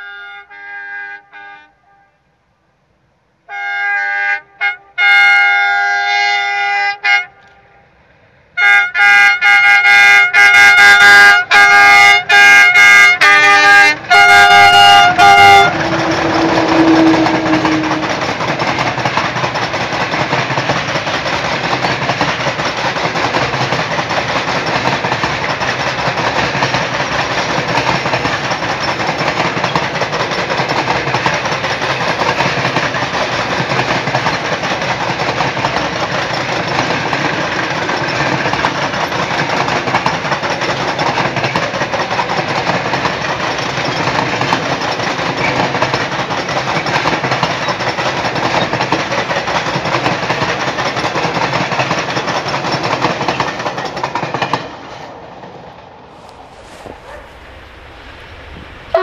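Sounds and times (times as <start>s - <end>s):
train horn blasts and toots: 0.0s - 2.4s, 3.5s - 8.0s, 8.6s - 18.8s
freight train wheels rumbling on rail: 5.0s - 59.0s.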